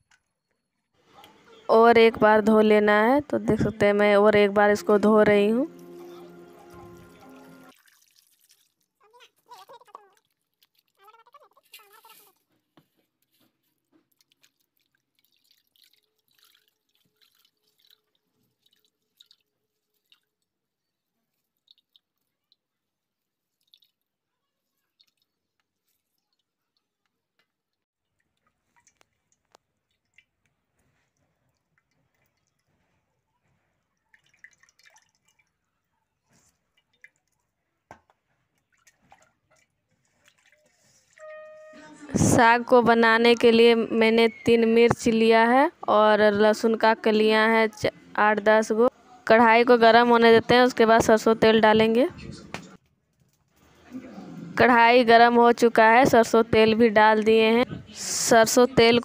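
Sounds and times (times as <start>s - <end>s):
water dripping into a metal pan: 13.9s - 20.5s, 21.5s - 22.6s, 23.5s - 24.1s, 24.8s - 32.9s, 33.8s - 35.7s, 36.3s - 41.5s.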